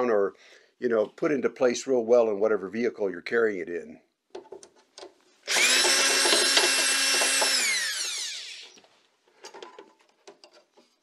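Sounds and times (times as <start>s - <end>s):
cordless drill whining: 5.4s - 8.9s.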